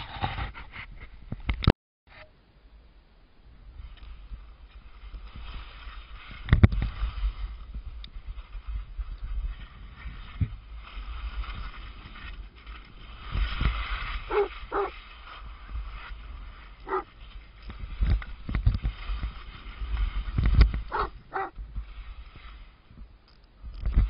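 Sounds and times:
skis hissing on snow: 4.1 - 23.0
dog barking: 14.3 - 15.0, 16.9 - 17.1, 20.9 - 21.6.

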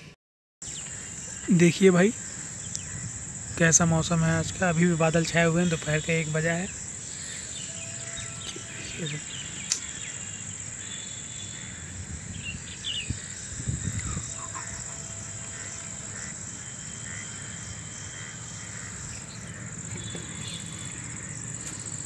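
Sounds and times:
insect chorus: 0.6 - 22.0
bird chirps: 4.5 - 22.0.

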